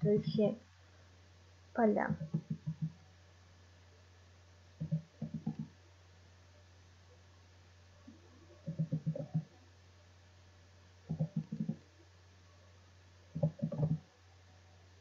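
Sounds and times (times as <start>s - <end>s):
low electrical hum: 0.0s - 15.0s
computer keyboard typing: 2.2s - 3.0s, 4.8s - 5.7s, 8.6s - 9.5s, 11.1s - 11.8s, 13.4s - 14.0s.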